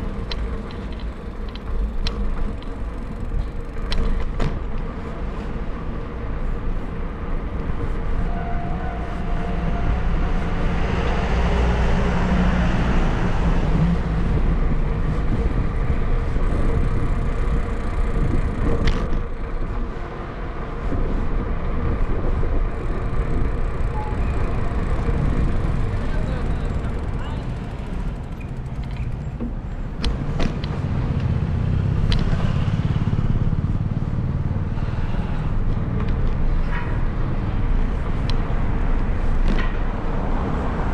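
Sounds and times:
street traffic: 0.0s - 40.9s
motor vehicle passing: 6.6s - 20.0s, 22.2s - 40.9s.

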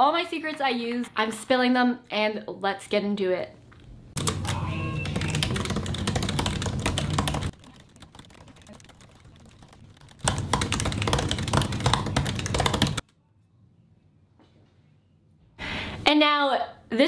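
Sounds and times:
laptop keyboard typing: 4.2s - 13.0s.

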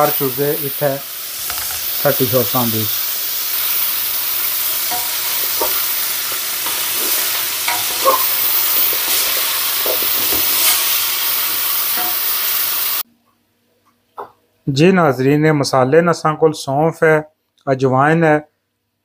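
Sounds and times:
chicken sizzling in butter: 0.0s - 13.0s.

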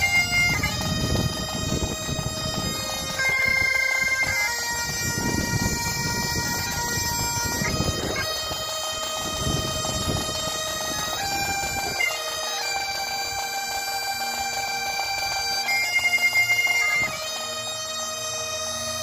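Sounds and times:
wind rumble on microphone: 0.0s - 12.0s
bagpipes playing slow tune: 0.0s - 19.0s.

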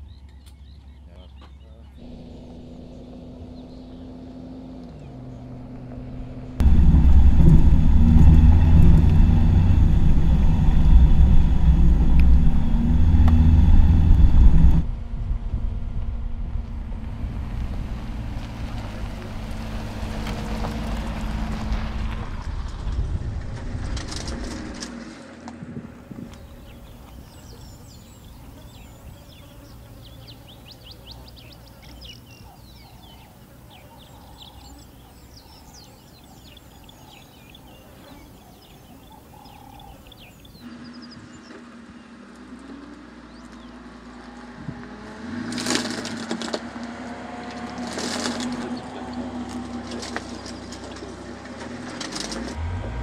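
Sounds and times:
tyre noise on dirt: 0.3s - 53.0s
truck engine running: 2.0s - 23.8s, 47.4s - 53.0s.

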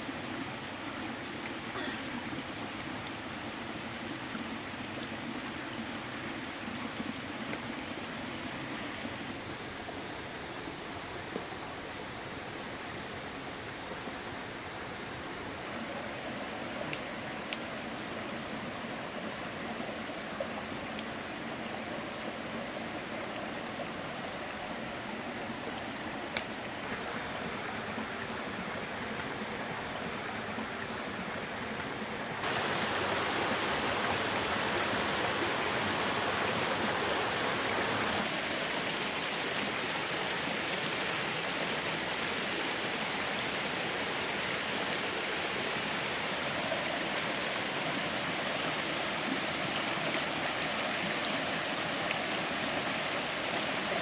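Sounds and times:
stream water running: 0.0s - 54.0s
faint click: 16.9s - 17.7s, 26.3s - 26.5s.

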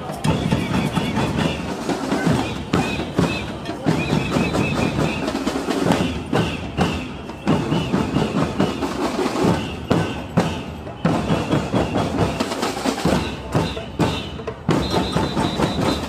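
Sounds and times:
samba drums playing: 0.0s - 16.0s
high whistle toots: 0.2s - 8.8s, 13.1s - 16.0s.

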